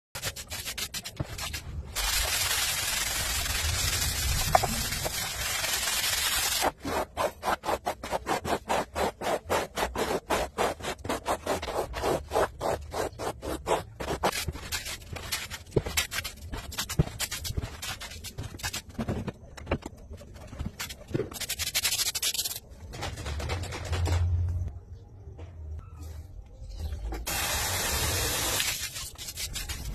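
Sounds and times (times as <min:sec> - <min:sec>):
broom scrubbing wet floor: 0:00.2 - 0:18.8.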